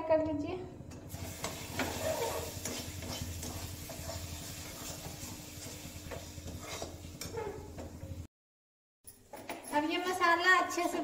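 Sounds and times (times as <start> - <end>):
paste sizzling: 1.1 - 7.4
metal spatula scraping pan: 1.2 - 8.0.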